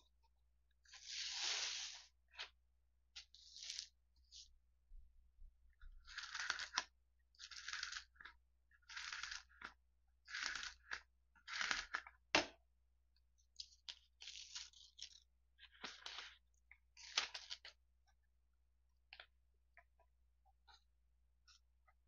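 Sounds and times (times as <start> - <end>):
plastic scraper rubbing paper: 6.0 - 12.0.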